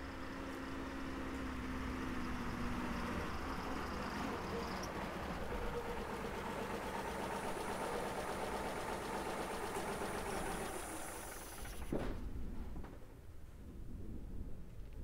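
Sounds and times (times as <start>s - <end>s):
truck engine idling: 0.0s - 12.2s
sharp thump: 11.8s - 12.3s.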